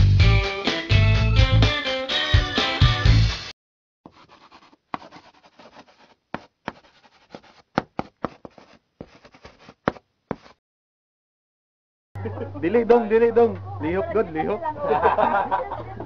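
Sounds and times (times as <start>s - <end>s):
pen tapping: 4.1s - 10.5s
pen scratching on paper: 4.1s - 10.6s.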